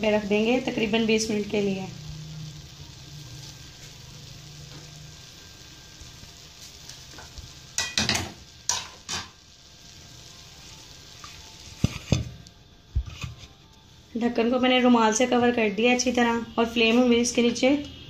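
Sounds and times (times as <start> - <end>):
rice sizzling in a pot: 0.0 - 18.0
metal cookware knocking: 7.8 - 9.3.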